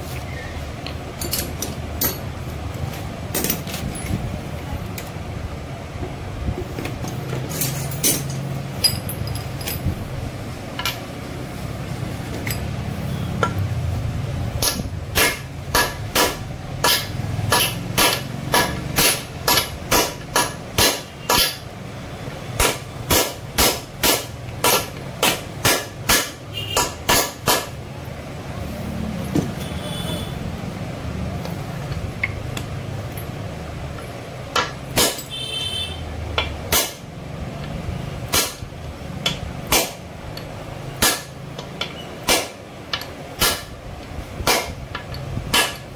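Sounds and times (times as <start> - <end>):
hammer striking metal: 14.6 - 21.7, 22.6 - 27.8, 34.5 - 35.5, 36.4 - 37.1, 38.3 - 43.8, 44.4 - 45.9.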